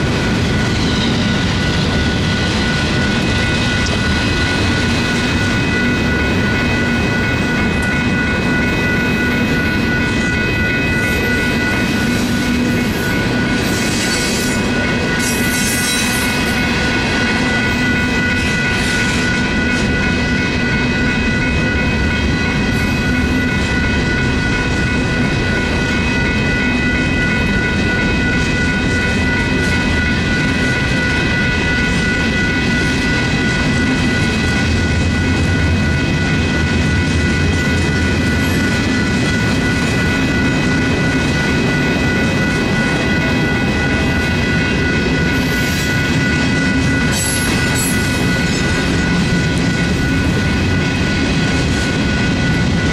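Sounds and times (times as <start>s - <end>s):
crossing bell ringing: 0.0s - 52.9s
train wheels rumbling on rail: 0.0s - 52.9s.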